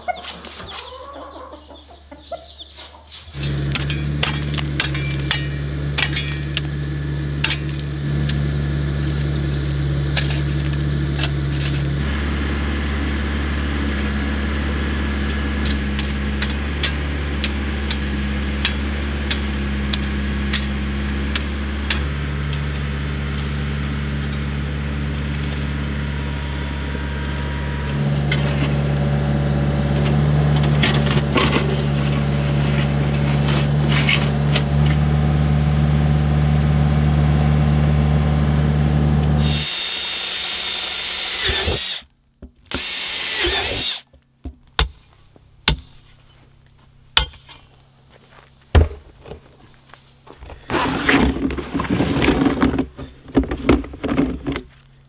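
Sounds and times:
tractor diesel engine running: 0:03.2 - 0:42.1.

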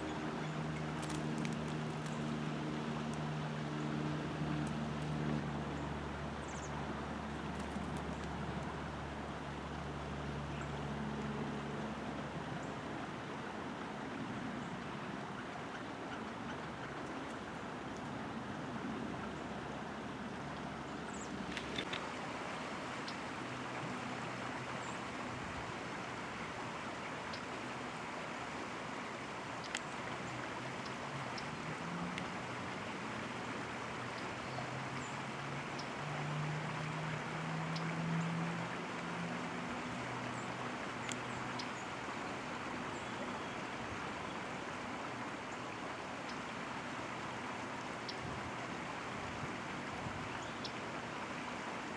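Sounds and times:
steady rushing background noise: 0:00.0 - 0:05.6
low engine-like hum: 0:00.0 - 0:51.9
outdoor background rush: 0:00.0 - 0:51.9
faint high ticks: 0:29.6 - 0:30.0, 0:32.1 - 0:32.3, 0:41.0 - 0:41.8.

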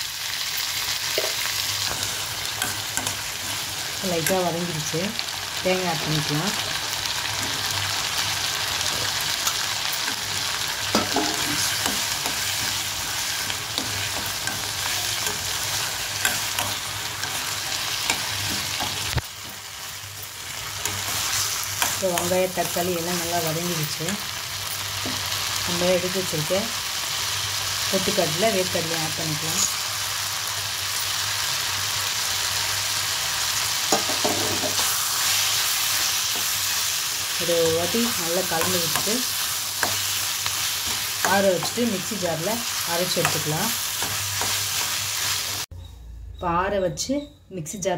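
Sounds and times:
vegetables sizzling in hot oil: 0:00.0 - 0:45.7
steel spoon scraping a pan: 0:08.8 - 0:25.5.

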